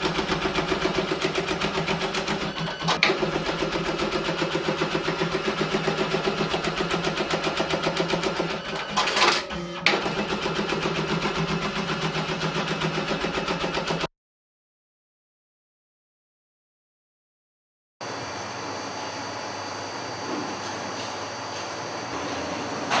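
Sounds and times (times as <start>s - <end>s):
sewing machine stitching: 0.0s - 14.1s.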